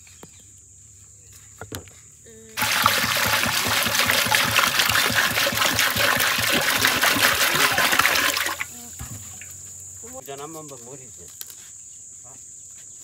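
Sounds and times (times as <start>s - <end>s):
water pouring and splashing: 2.6s - 8.7s.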